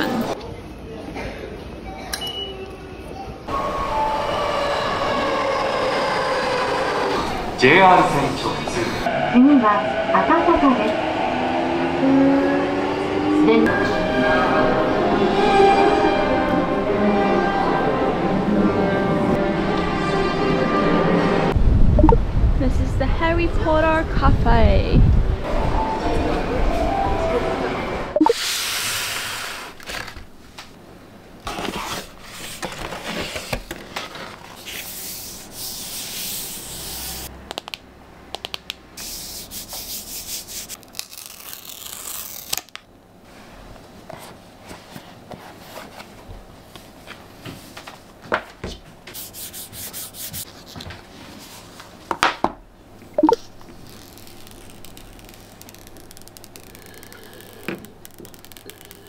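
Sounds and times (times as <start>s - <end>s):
paper and cardboard rustling: 31.5s - 35.0s
paper cover peeling: 40.7s - 42.8s, 53.7s - 59.0s.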